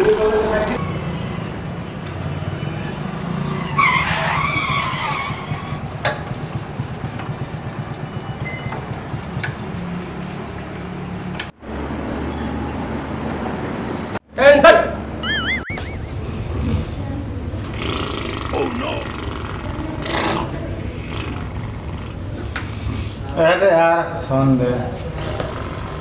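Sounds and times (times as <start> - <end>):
motorcycle engine running: 4.8 - 10.6, 15.7 - 23.4, 24.8 - 26.0
wavering high-pitched sound: 15.2 - 16.4.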